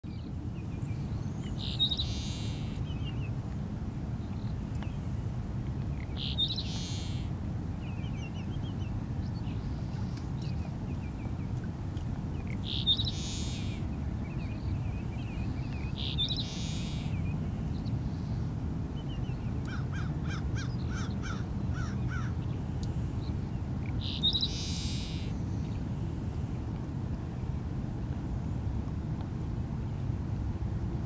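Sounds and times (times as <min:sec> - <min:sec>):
steady low rumble: 0:00.0 - 0:31.0
sparrow song with harsh buzz: 0:00.1 - 0:03.4, 0:05.9 - 0:11.6, 0:12.3 - 0:26.4.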